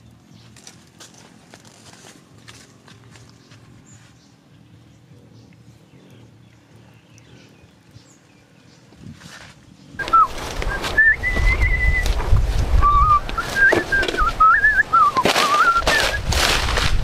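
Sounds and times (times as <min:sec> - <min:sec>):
wavering whistle: 0:10.0 - 0:12.2, 0:12.8 - 0:16.4
low rumble: 0:10.0 - 0:17.0.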